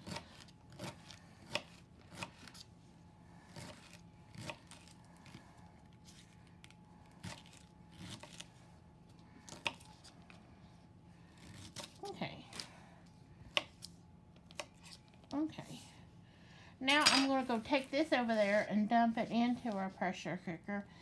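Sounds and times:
knife chopping celery: 0.0s - 2.6s, 3.5s - 5.4s.

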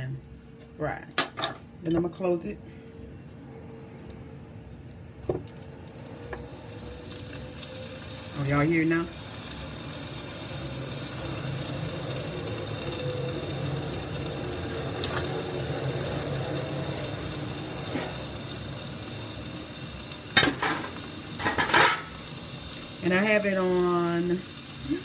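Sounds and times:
chicken sizzling on contact grill: 5.2s - 25.0s.

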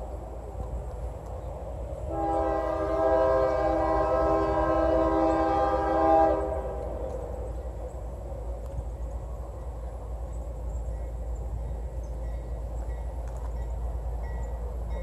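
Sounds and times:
locomotive air horn blast: 2.1s - 7.0s.

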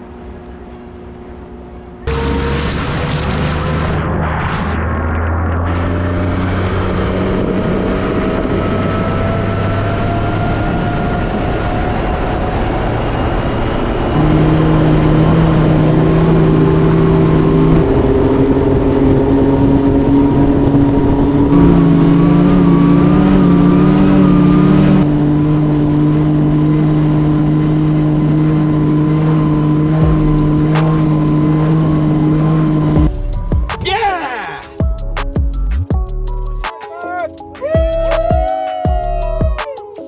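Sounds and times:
wind: 0.0s - 33.0s
electric outboard motor whine: 0.0s - 33.1s.

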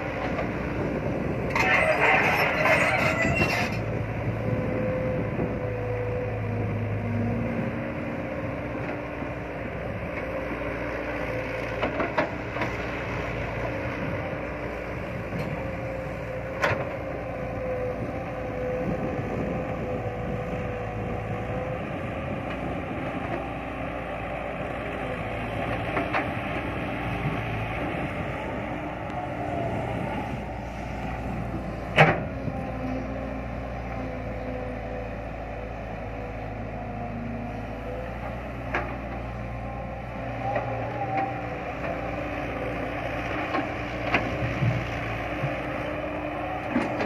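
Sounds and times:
excavator diesel engine: 0.0s - 47.0s.

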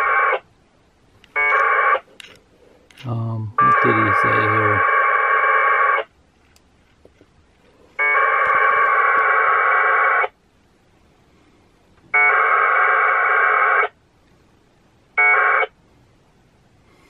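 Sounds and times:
packet radio data tones: 3.1s - 6.1s.

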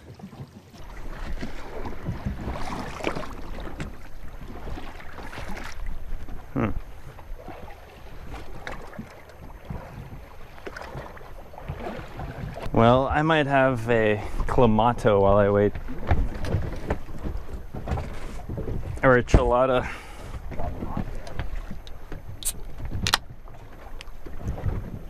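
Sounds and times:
water sloshing against boat hull: 0.0s - 25.0s.

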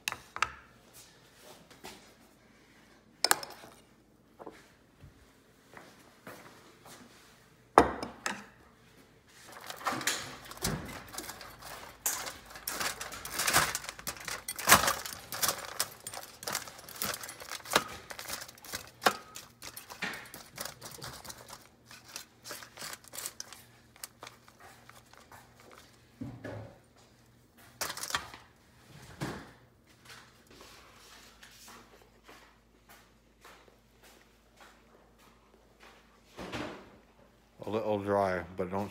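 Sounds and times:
knife scraping on foil: 9.5s - 25.8s.

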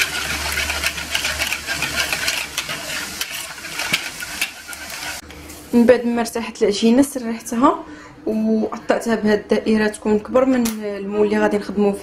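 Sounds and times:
whisk beating liquid in bowl: 0.0s - 5.2s.

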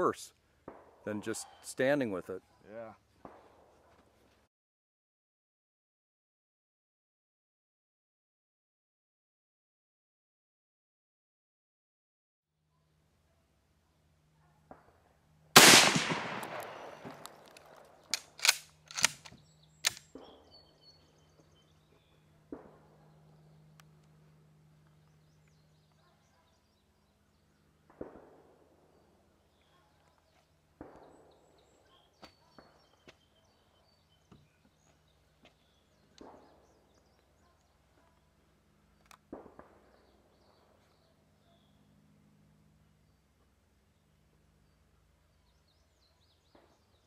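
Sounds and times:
faint gunshots: 3.2s - 3.7s, 15.6s - 17.5s, 27.9s - 28.7s, 30.8s - 31.3s, 39.3s - 40.1s
rifle bolt clicks: 15.6s - 20.0s
rifle shot with echo: 15.6s - 20.4s.

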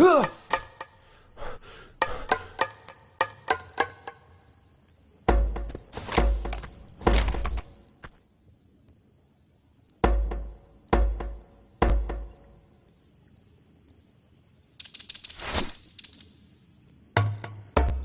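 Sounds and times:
crickets chirring: 0.0s - 18.0s
low booming thuds: 5.3s - 7.7s, 10.1s - 12.4s
deep heavy thumps: 5.3s - 7.8s, 10.0s - 12.4s
dense rattle: 5.4s - 7.7s.

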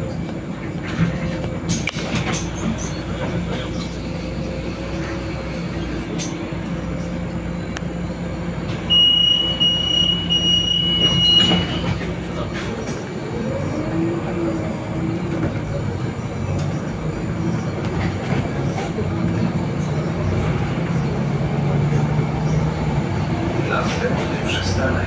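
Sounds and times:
bus drivetrain hum: 0.0s - 25.0s
road noise: 0.0s - 25.0s
high electronic beep: 8.9s - 11.9s.

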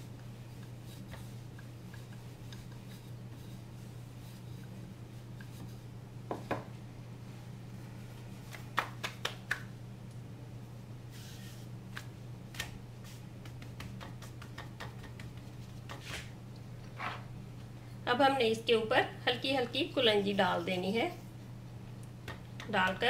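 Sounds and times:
dough rustle: 0.0s - 6.6s, 10.7s - 16.4s
low steady hum: 0.0s - 23.0s.

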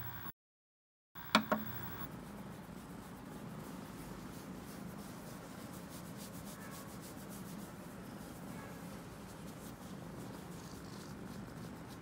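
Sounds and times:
hand rubbing fur: 2.1s - 12.0s
kitten purring: 9.4s - 12.0s.

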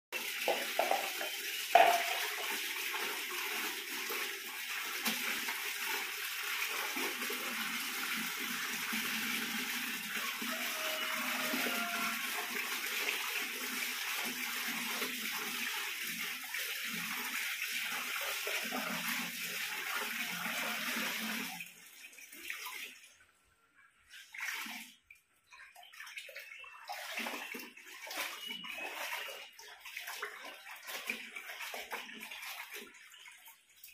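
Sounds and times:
water running from a tap: 0.2s - 23.0s
clothes splashing in water: 24.1s - 25.0s.

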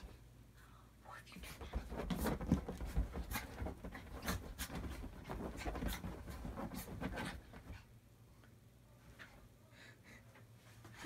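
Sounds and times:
dog scrambling on couch cushions: 1.5s - 7.8s.

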